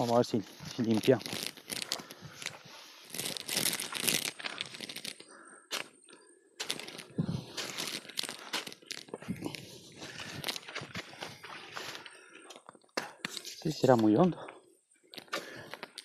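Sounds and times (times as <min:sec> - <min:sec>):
dry grass rustling and tearing: 0:00.0 - 0:05.9, 0:06.6 - 0:12.0.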